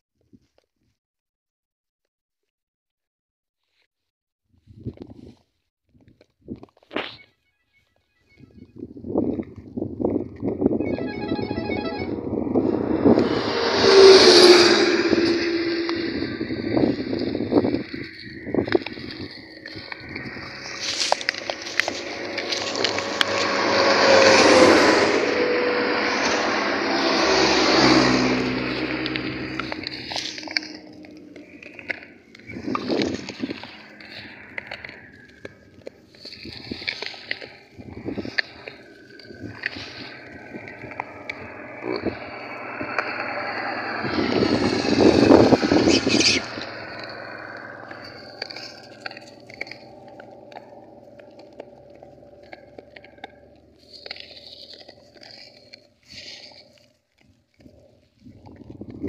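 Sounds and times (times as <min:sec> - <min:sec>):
low engine hum: 0:10.2 - 0:36.9, 0:38.0 - 0:55.2
vehicle passing: 0:10.5 - 0:56.5.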